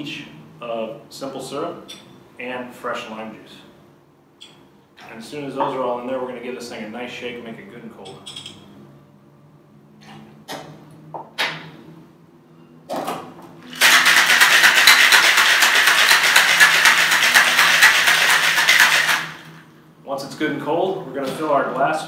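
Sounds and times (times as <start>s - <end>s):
ice rattling in cocktail shaker: 13.7s - 19.5s.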